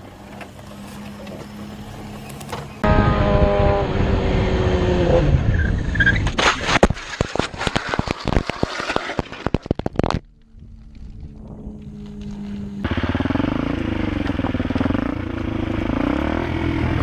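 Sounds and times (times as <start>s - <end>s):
motorcycle engine running: 0.0s - 5.8s, 10.4s - 17.0s
motorcycle sliding and tumbling: 0.0s - 17.0s.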